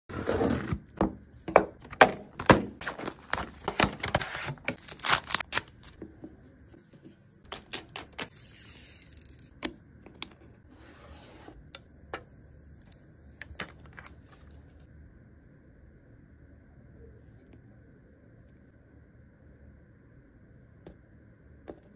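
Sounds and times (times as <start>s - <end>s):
plastic rustling: 2.4s - 6.0s
plastic packaging crinkling: 2.8s - 6.0s.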